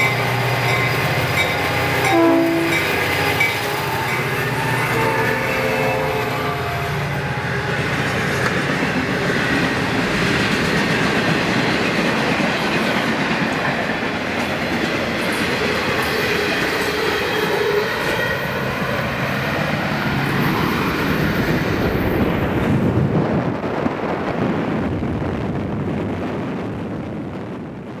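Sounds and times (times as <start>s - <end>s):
freight train wheels clattering: 0.0s - 6.3s, 6.9s - 22.6s
steady rush of train noise: 0.0s - 28.0s.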